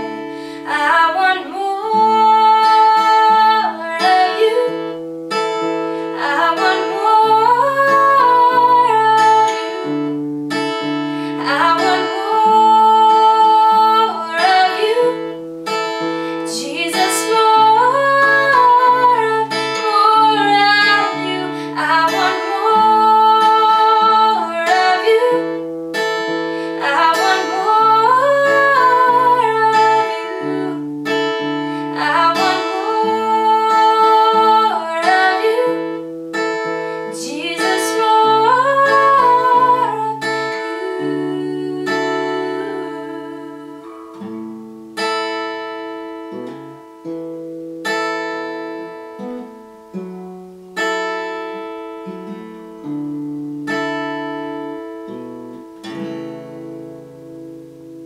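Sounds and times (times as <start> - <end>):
woman singing: 0.0 - 44.3
acoustic guitar chords: 0.0 - 58.0.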